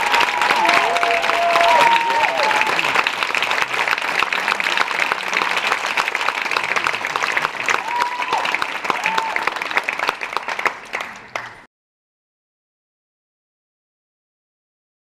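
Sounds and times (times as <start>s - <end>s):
audience applauding: 0.0s - 11.7s
crowd cheering: 0.0s - 11.7s.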